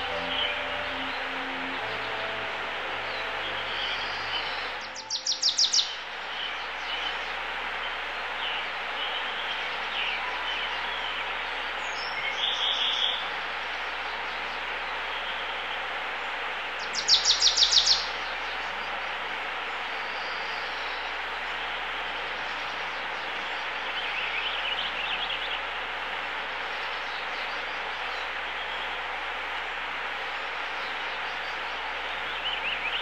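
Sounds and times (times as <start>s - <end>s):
songbird calling: 0.0s - 7.2s, 16.8s - 18.9s
background hiss: 0.0s - 33.0s.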